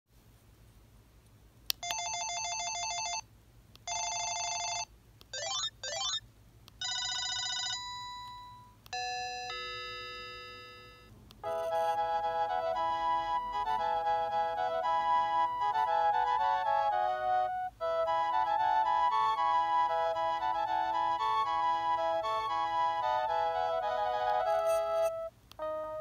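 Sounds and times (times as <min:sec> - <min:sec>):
phone ringer tones: 0:01.8 - 0:03.2, 0:03.9 - 0:06.2, 0:06.8 - 0:12.1.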